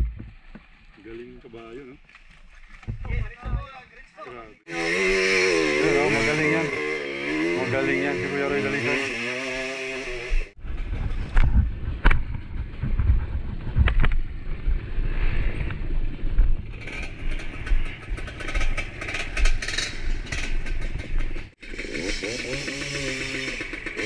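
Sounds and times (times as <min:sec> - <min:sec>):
sharp knocks and thumps: 0:00.0 - 0:00.9, 0:02.6 - 0:03.8
motorcycle engine rumble: 0:02.8 - 0:24.0.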